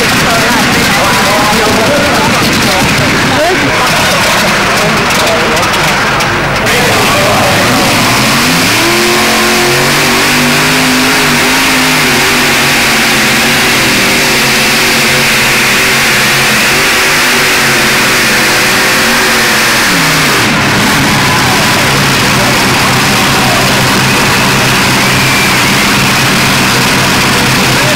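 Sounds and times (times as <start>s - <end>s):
tractor engines running flat out: 0.0s - 27.9s.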